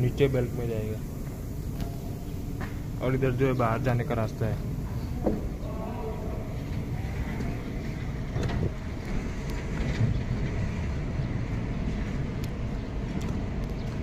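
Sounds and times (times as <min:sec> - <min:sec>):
wind buffeting microphone: 0:03.7 - 0:14.0.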